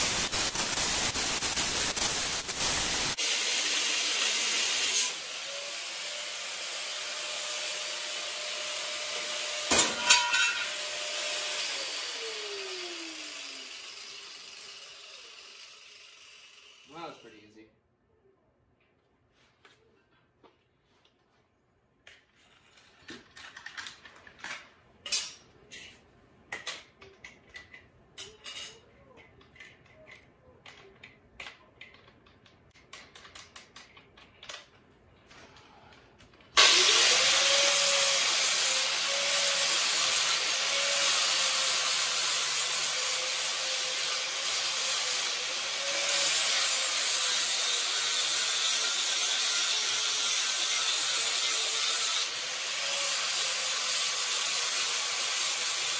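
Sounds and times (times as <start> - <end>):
angle grinder cutting steel: 0.0 - 17.2, 36.6 - 55.9
metal tools clinking: 9.8 - 10.8, 27.2 - 35.6.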